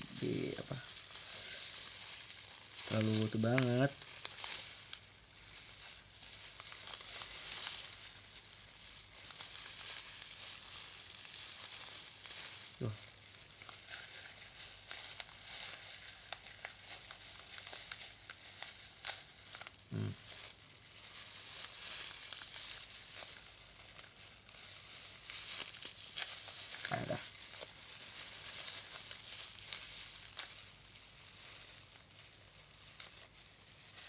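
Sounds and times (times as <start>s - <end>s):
hiss: 0.0s - 2.0s, 19.9s - 20.2s
plastic crinkling and rustling: 0.0s - 34.0s.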